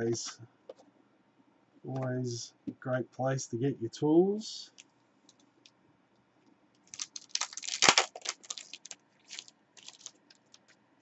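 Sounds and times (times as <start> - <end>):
plastic wrapper tearing and crinkling: 6.8 - 10.8.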